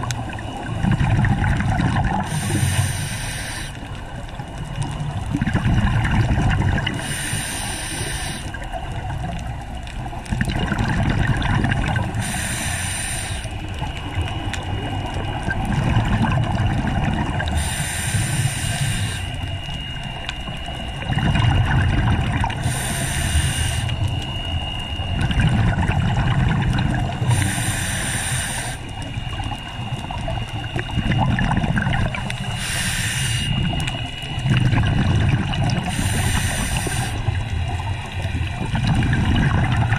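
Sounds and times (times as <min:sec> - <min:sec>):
bubbles gurgling: 0:00.0 - 0:39.9
regulator inhale hiss: 0:02.2 - 0:04.0, 0:06.9 - 0:08.7, 0:12.1 - 0:13.8, 0:17.4 - 0:19.6, 0:22.5 - 0:24.2, 0:27.2 - 0:29.1, 0:32.4 - 0:33.8, 0:35.8 - 0:37.5.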